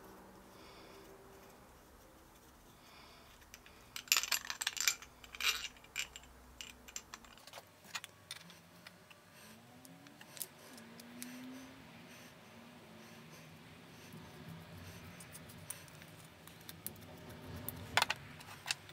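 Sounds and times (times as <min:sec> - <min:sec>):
metal bolt and nut clinking: 0:03.5 - 0:08.6.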